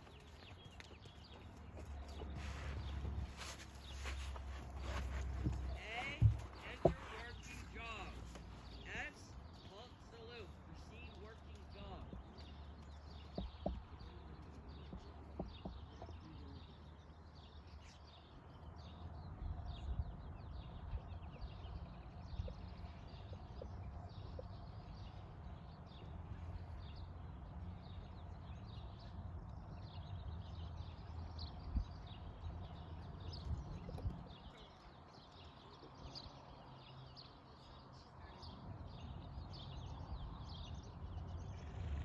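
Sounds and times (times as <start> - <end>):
muffled hoofbeats in sand: 0.0 - 42.0
small birds chirping: 0.0 - 42.0.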